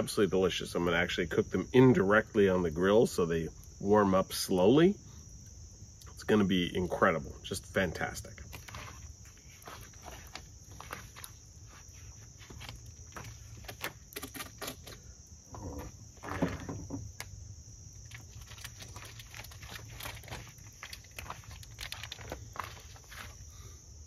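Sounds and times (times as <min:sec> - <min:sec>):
wood fire crackling: 0:00.0 - 0:23.9
high insect drone: 0:00.0 - 0:24.0
shuffling footsteps: 0:08.5 - 0:14.0, 0:18.3 - 0:23.5.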